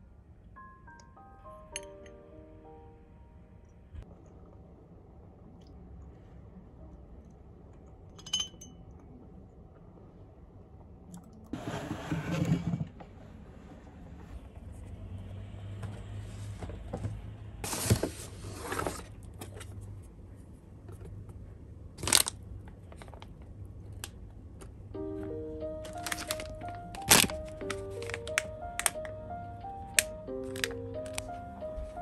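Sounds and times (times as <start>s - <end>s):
spoon clinking on glass: 8.1s - 8.8s
paper bag rustling: 17.6s - 19.2s, 25.8s - 29.0s, 30.0s - 32.0s.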